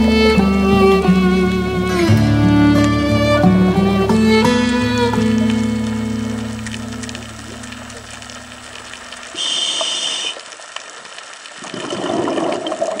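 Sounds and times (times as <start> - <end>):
song: 0.0 - 7.4
hissing regulator inhalation: 9.3 - 10.4
exhaled bubbles gushing: 11.4 - 13.0.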